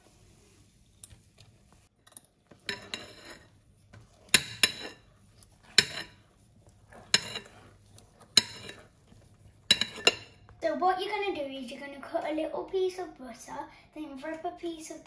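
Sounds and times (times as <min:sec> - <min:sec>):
utensil clinking on bowl: 0:02.0 - 0:06.2, 0:06.9 - 0:08.9, 0:09.6 - 0:10.6
utensil scraping bowl: 0:02.4 - 0:10.6.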